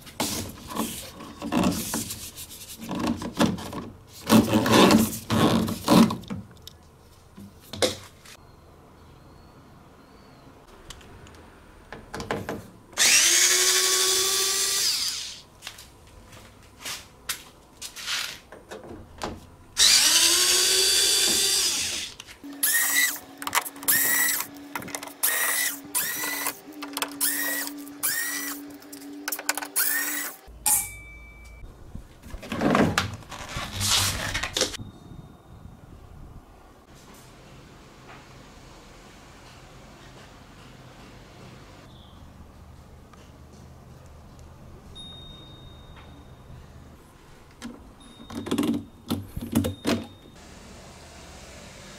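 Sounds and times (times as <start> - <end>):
electric screwdriver whirring: 13.0 - 15.4, 19.8 - 23.2, 23.8 - 28.7, 29.8 - 30.4.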